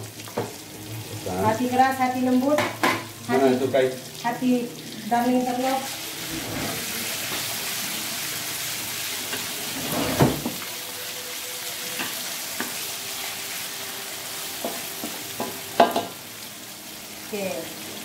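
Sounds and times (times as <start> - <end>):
food sizzling in a wok: 0.0 - 18.0
wooden spatula stirring and scraping: 6.1 - 7.7.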